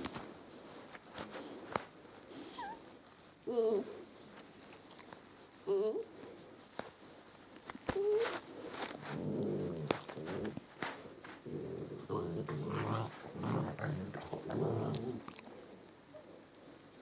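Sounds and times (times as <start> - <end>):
dog vocalising low: 11.4 - 15.5.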